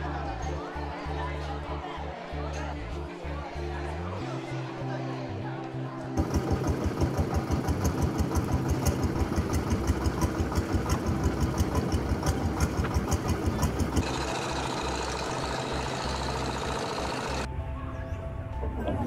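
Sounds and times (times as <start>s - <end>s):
boat engine running: 6.2s - 17.5s.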